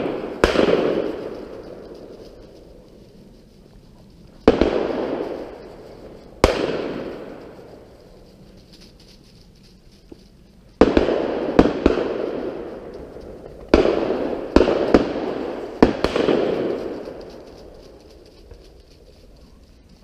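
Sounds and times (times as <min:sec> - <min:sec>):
shotgun shots with echo: 0:00.0 - 0:01.4, 0:04.5 - 0:05.7, 0:06.4 - 0:07.4, 0:10.8 - 0:12.8, 0:13.7 - 0:17.1.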